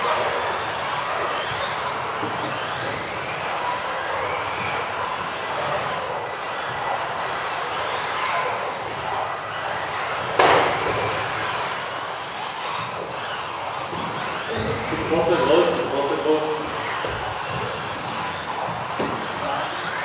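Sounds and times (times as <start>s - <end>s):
rc car motors whining: 0.0s - 20.0s
loud impact: 10.4s - 11.3s.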